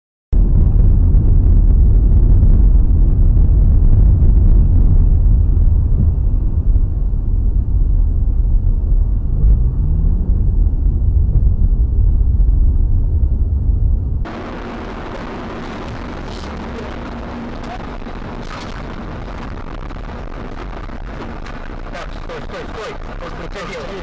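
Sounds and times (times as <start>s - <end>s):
truck running alongside: 0.4s - 22.8s
road and engine rumble in car: 0.4s - 24.0s
rising engine tone: 3.4s - 20.8s.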